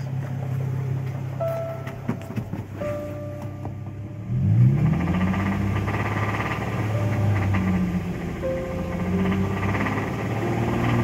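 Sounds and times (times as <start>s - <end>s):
car engine idling and revving: 0.0s - 11.0s
engine knock: 4.9s - 11.0s.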